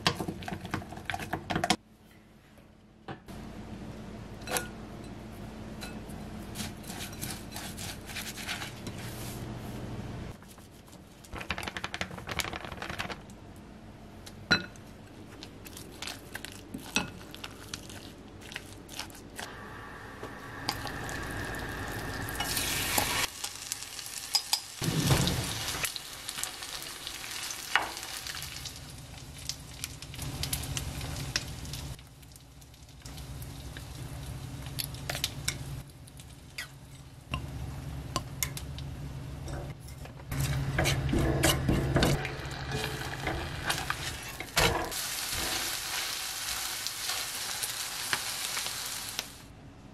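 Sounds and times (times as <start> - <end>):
pancake sizzling in a pan: 42.2 - 49.4.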